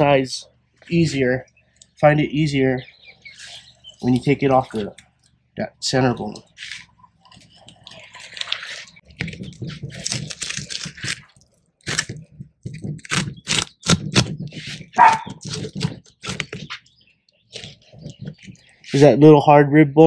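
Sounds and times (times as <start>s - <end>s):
knife cutting and scraping fish: 6.2s - 19.1s.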